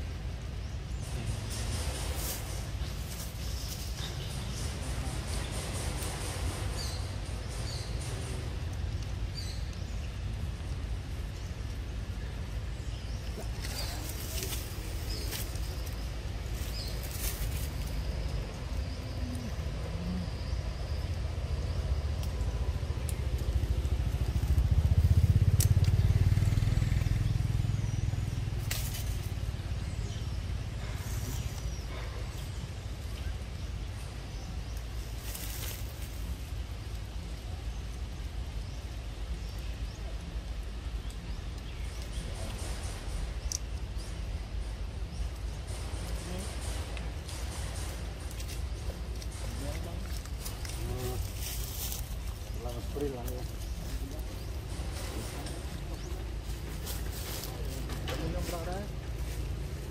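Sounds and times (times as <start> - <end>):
vehicle engine rumble: 0.0 - 59.9
faint clicks: 40.9 - 43.9.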